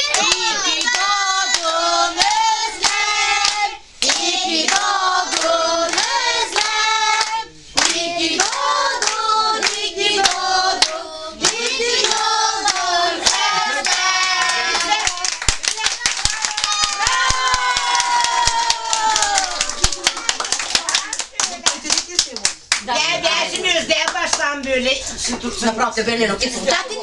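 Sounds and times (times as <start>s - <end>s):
group singing: 0.0s - 15.2s
people clapping in time: 0.0s - 22.9s.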